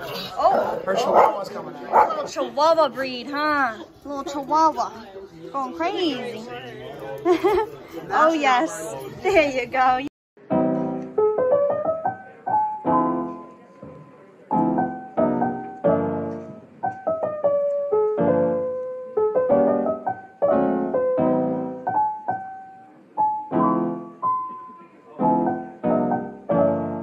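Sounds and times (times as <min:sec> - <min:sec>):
slow piano music: 0:10.4 - 0:27.0.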